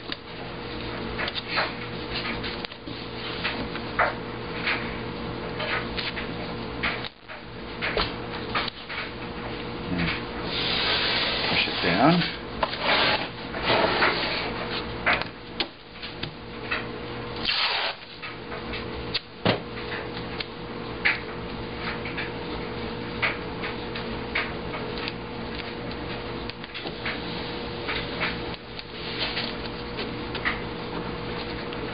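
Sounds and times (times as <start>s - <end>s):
hands rubbing tape on paper: 10.4s - 12.0s, 12.7s - 14.9s.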